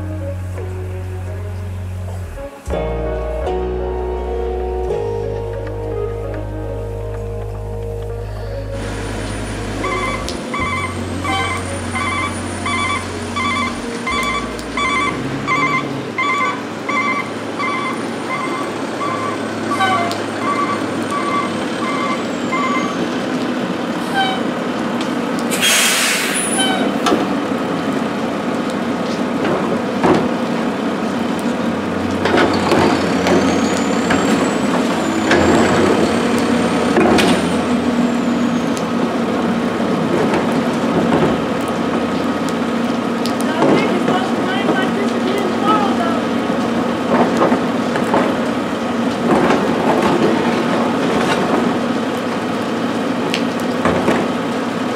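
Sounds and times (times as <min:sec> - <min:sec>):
steady rain: 0:00.0 - 0:54.9
truck whine: 0:00.0 - 0:54.9
truck backup alarm beeping: 0:08.1 - 0:24.6, 0:32.0 - 0:46.4
air brakes hiss: 0:25.5 - 0:27.0.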